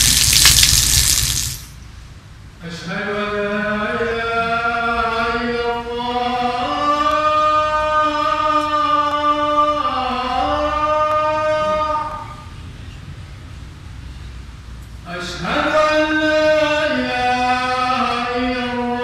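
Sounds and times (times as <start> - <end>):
man chanting a prayer: 2.6 - 12.5, 15.0 - 19.0.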